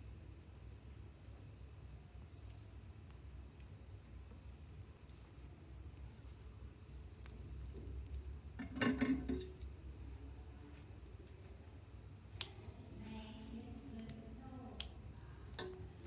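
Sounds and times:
scissors snipping: 0:13.8 - 0:15.8.

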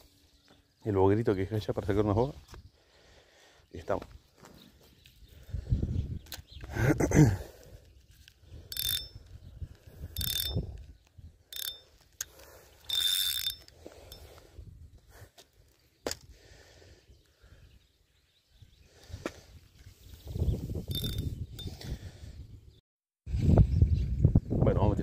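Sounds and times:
fishing reel click: 0:08.7 - 0:09.2, 0:10.2 - 0:10.6, 0:11.5 - 0:13.7, 0:20.9 - 0:21.2
fishing reel ratcheting whirrs: 0:08.7 - 0:09.2, 0:10.1 - 0:10.7, 0:11.5 - 0:13.7, 0:20.9 - 0:21.3.

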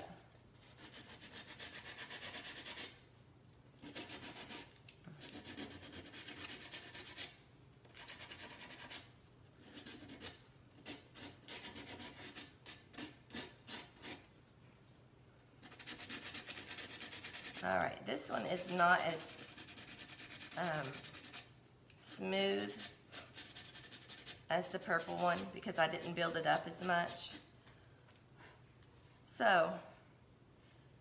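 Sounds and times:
sanding block rubbing wood: 0:18.6 - 0:21.4.

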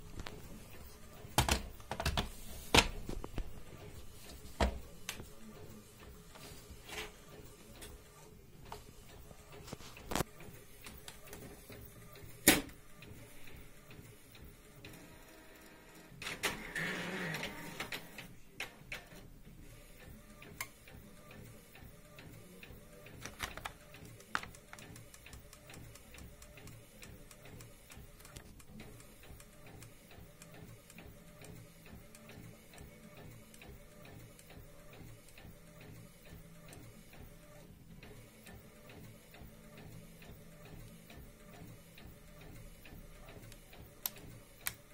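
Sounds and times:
faint rhythmic ticking: 0:23.8 - 0:44.9.

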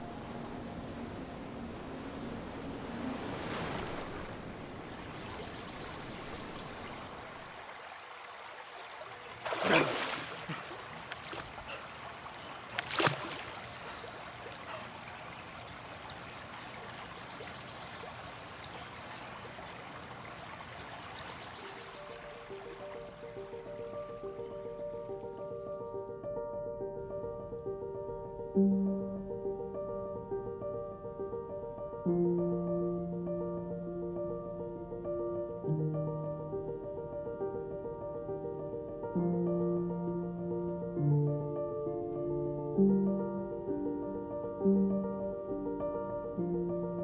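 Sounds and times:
open water washing: 0:00.0 - 0:24.3
person splashing out of water: 0:09.4 - 0:11.7, 0:12.7 - 0:13.8.

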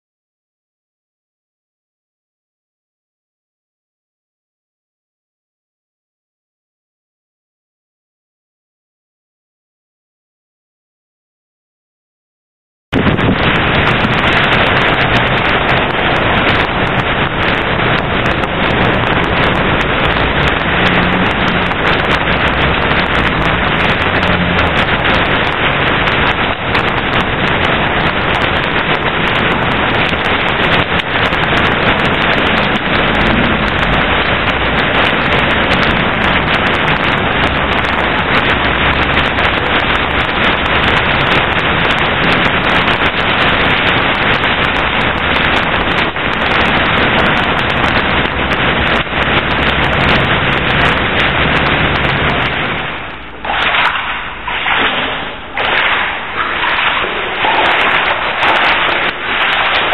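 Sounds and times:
floodwater rushing over pavement: 0:12.9 - 0:59.9.

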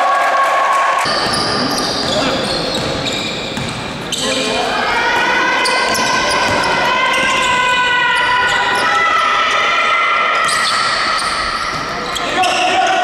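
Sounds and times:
basketball bouncing on wooden floor: 0:01.1 - 0:04.0.

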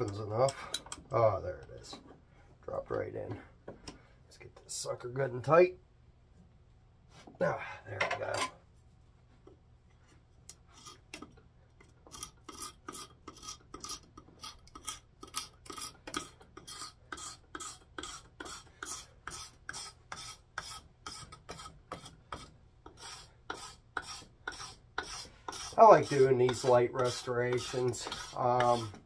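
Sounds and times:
knife scraping wooden handle: 0:10.5 - 0:29.0.

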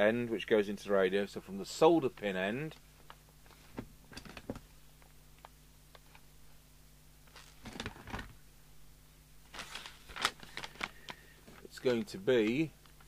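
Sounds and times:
low steady hum: 0:00.0 - 0:13.0
paper rustling: 0:07.3 - 0:08.3, 0:09.5 - 0:12.6.

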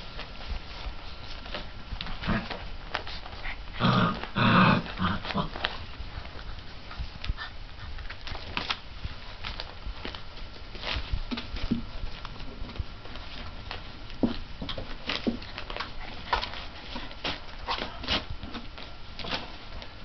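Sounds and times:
paws scuffling: 0:00.0 - 0:20.0
puppies growling: 0:02.0 - 0:08.6.

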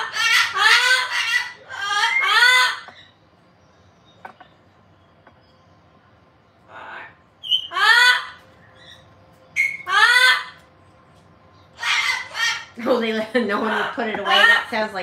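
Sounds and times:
parrot rasping call: 0:00.0 - 0:03.0, 0:06.7 - 0:09.0, 0:09.6 - 0:10.6, 0:11.8 - 0:12.8
parrot calling: 0:00.0 - 0:03.3, 0:06.6 - 0:10.7, 0:11.6 - 0:15.0.

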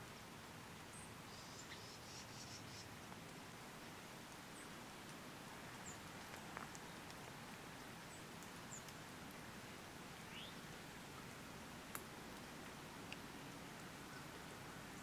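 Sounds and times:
faint steady hiss: 0:00.0 - 0:15.0
light ticks: 0:05.8 - 0:09.5, 0:10.4 - 0:14.2.

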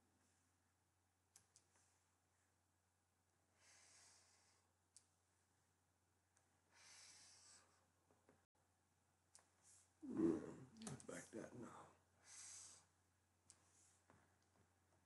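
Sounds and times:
computer mouse clicks: 0:01.3 - 0:01.7
soft breaths: 0:03.5 - 0:05.1, 0:06.6 - 0:08.0, 0:09.4 - 0:14.6.

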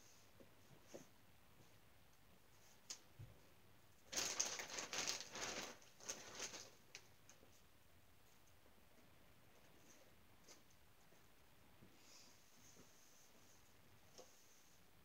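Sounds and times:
clothes rustling and crinkling: 0:02.4 - 0:11.9.

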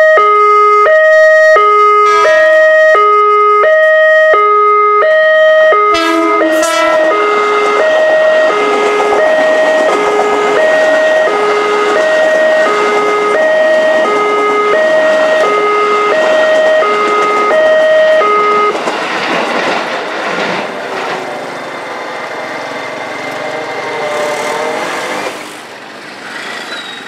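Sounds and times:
two-tone level-crossing alarm: 0:00.0 - 0:18.8
electric train running past: 0:00.5 - 0:04.3, 0:05.9 - 0:27.0.

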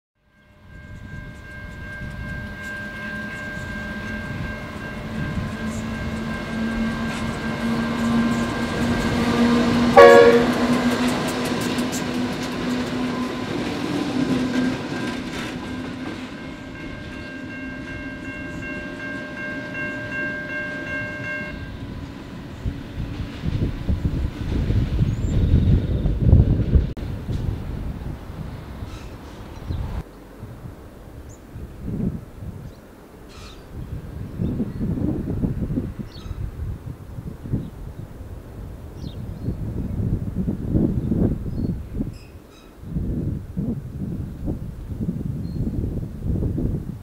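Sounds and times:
steady high tones: 0:00.3 - 0:22.6
diesel locomotives passing: 0:00.3 - 0:47.0.

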